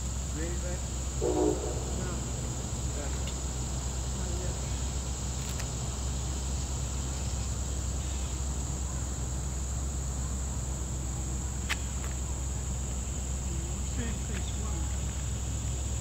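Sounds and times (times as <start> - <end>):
insects buzzing: 0.0 - 16.0
steady low rumble: 1.2 - 6.8.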